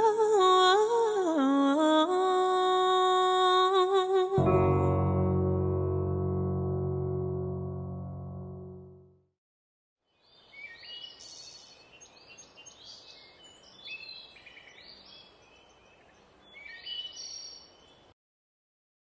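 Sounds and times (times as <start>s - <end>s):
songbirds singing and chirping: 10.2s - 18.1s.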